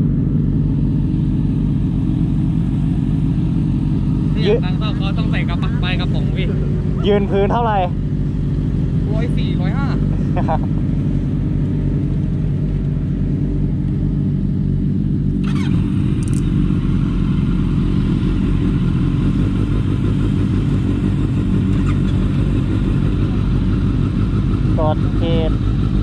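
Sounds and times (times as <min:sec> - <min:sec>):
motorcycle engines idling: 0:00.0 - 0:26.0
brief click: 0:16.2 - 0:16.5.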